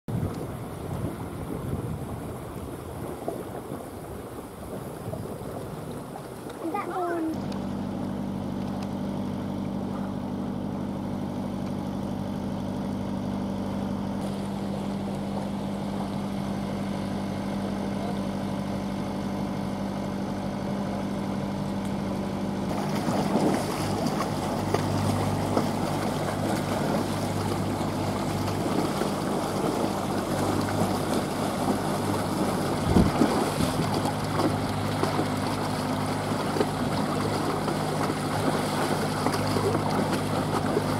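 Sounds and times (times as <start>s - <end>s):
wind noise: 0.1s - 6.2s, 32.2s - 34.1s
water rushing past hull: 0.1s - 19.8s, 22.6s - 40.9s
outboard motor running: 0.1s - 40.9s.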